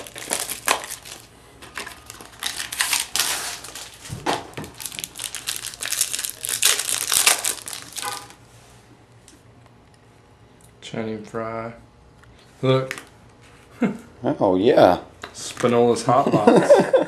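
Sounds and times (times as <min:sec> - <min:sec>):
card wrappers crinkling: 0:00.0 - 0:08.4.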